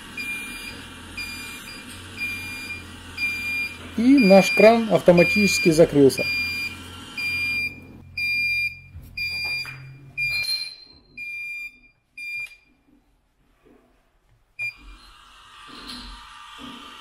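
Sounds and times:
high-pitched alarm beeps: 0:00.2 - 0:12.7.

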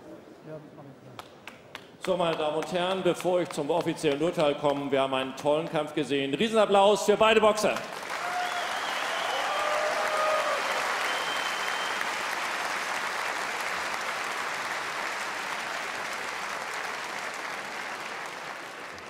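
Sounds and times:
crowd applauding: 0:07.6 - 0:19.0.

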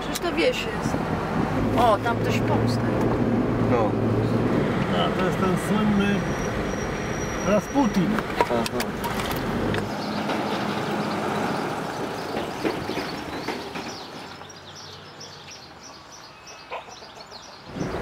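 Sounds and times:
car road noise on asphalt: 0:00.0 - 0:18.0
small birds chirping: 0:09.2 - 0:18.0.

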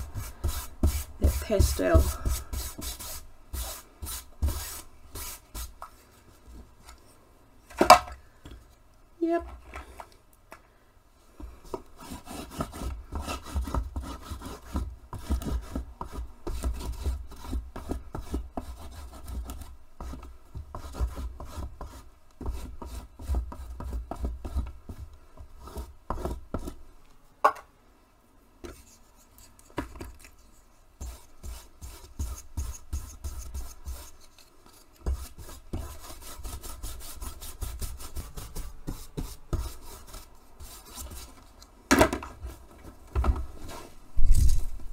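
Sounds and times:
crayon scribbling on fabric: 0:00.0 - 0:05.8, 0:30.4 - 0:34.4, 0:35.0 - 0:41.4.

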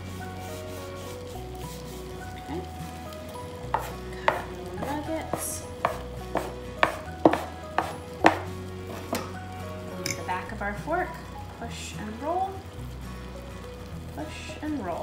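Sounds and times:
knife chopping dough on board: 0:03.8 - 0:08.5.

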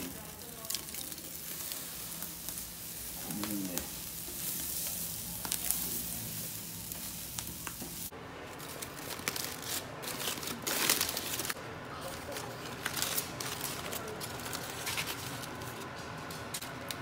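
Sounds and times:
meat sizzling on a grill: 0:00.0 - 0:08.1
foil crinkling: 0:00.0 - 0:17.0.

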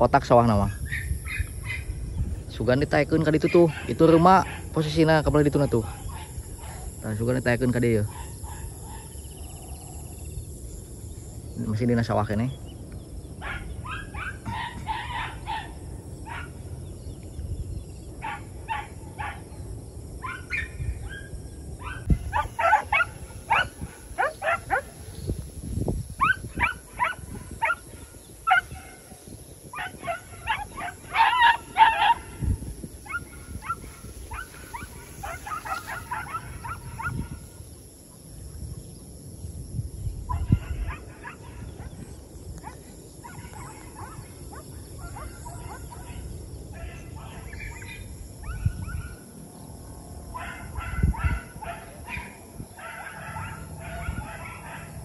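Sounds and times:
dogs barking and yelping: 0:00.8 - 0:02.0, 0:03.3 - 0:05.0, 0:08.0 - 0:10.2, 0:13.3 - 0:16.8, 0:18.2 - 0:19.6, 0:20.2 - 0:25.4, 0:26.1 - 0:37.6, 0:40.3 - 0:49.5, 0:50.3 - 0:55.0.

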